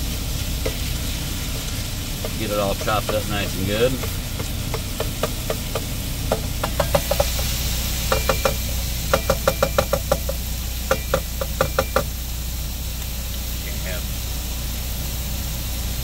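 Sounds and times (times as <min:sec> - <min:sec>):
truck engine idling: 0:00.0 - 0:16.0
meat chopper knocking on skillet: 0:02.2 - 0:12.2.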